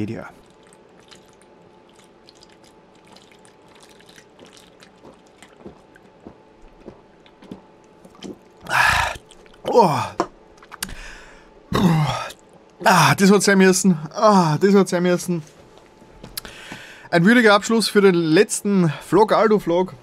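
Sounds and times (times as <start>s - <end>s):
man swallowing: 8.2s - 11.1s, 11.7s - 12.9s
man sighing aah: 8.6s - 10.3s
loud breath out: 16.4s - 17.1s.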